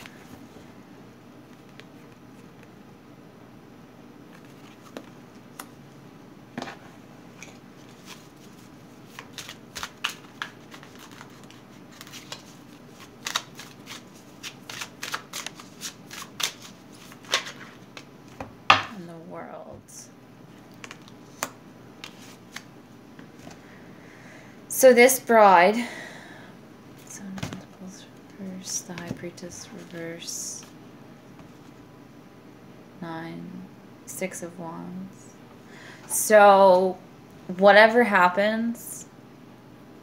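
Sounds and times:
cards being shuffled: 0:04.3 - 0:05.7, 0:07.4 - 0:18.5, 0:20.6 - 0:23.6, 0:28.6 - 0:30.8.

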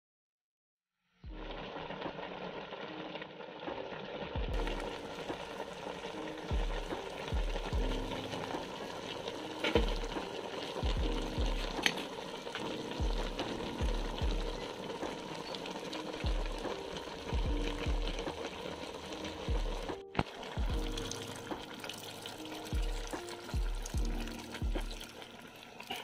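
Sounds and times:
food sizzling in a pot: 0:01.0 - 0:26.0
background music with bass beat: 0:06.5 - 0:08.3, 0:09.8 - 0:11.8, 0:16.3 - 0:18.4.

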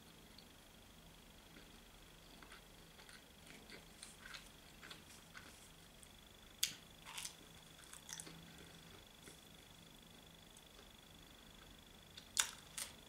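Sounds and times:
faint high-pitched whine: 0:00.0 - 0:13.0
chewing with mouth clicks: 0:02.3 - 0:05.6, 0:06.6 - 0:08.4.

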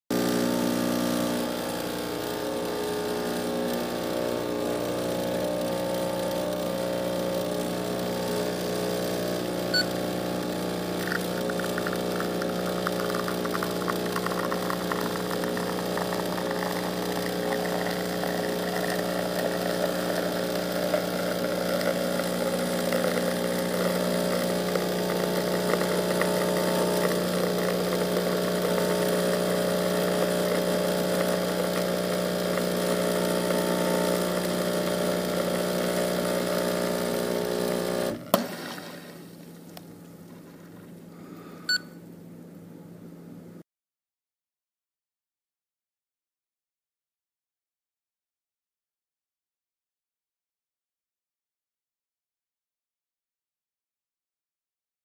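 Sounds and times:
espresso machine pump humming: 0:00.1 - 0:39.0
espresso trickling into cup: 0:10.9 - 0:34.8.

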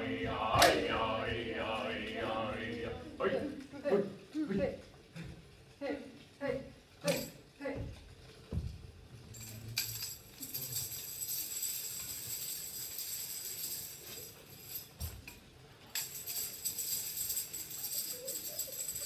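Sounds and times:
metal jingles shaken: 0:09.4 - 0:15.0, 0:15.9 - 0:19.0.

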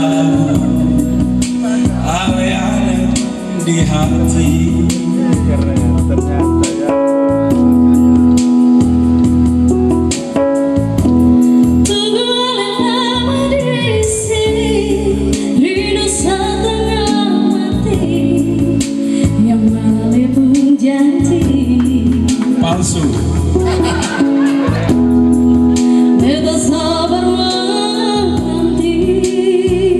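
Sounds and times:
woman singing a pop ballad: 0:00.0 - 0:02.6, 0:11.6 - 0:22.6, 0:24.9 - 0:29.9
electronic keyboard chords: 0:00.0 - 0:29.9.

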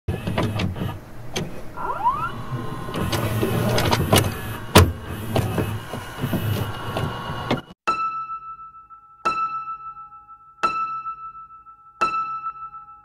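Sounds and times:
cassette deck mechanism clicking: 0:00.2 - 0:07.6
motor whine rising in pitch: 0:00.8 - 0:07.7.

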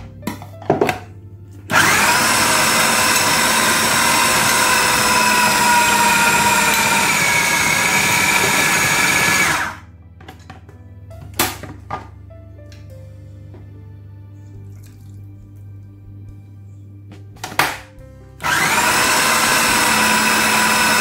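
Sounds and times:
food processor running: 0:01.7 - 0:09.9, 0:18.4 - 0:21.0.

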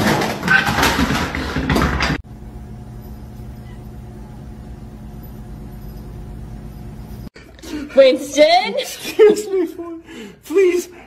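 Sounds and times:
low mechanical hum: 0:02.2 - 0:07.3
faint even tones: 0:02.3 - 0:07.3.

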